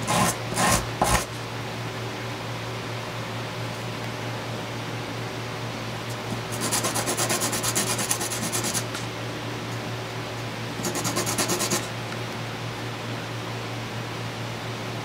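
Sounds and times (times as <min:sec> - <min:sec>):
wooden gear rasping on sandpaper: 0:00.0 - 0:01.3, 0:06.6 - 0:08.8.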